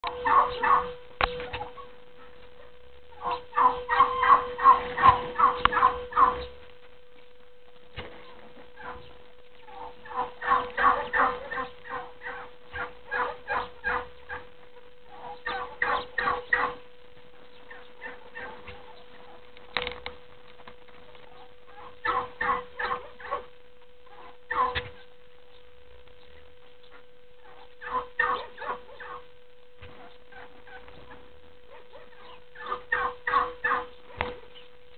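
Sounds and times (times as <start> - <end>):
turkey calling: 0.0 - 7.3, 7.9 - 34.9.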